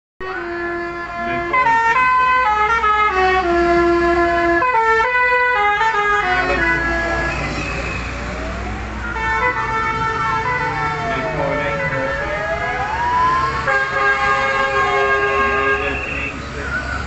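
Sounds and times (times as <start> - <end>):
musical vehicle horns: 0.2 - 16.5
passing vehicle engines: 0.3 - 17.0
siren wailing: 4.7 - 17.0.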